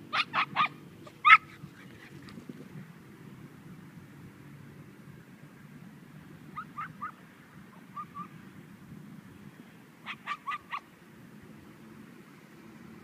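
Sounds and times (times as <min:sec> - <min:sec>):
dogs yipping: 0:00.1 - 0:02.4, 0:06.6 - 0:07.2, 0:07.8 - 0:08.3, 0:10.0 - 0:10.8.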